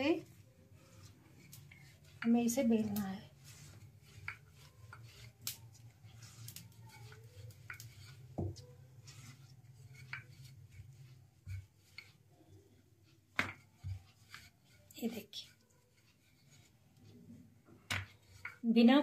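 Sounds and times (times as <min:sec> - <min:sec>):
rolling pin rubbing dough: 0:00.0 - 0:19.0
rolling pin taps and clicks: 0:13.3 - 0:14.6, 0:17.7 - 0:18.6.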